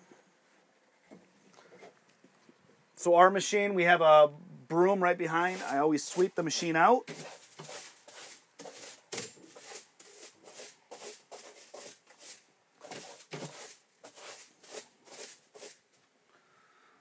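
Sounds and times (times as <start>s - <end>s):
hand broom sweeping: 5.1s - 16.0s.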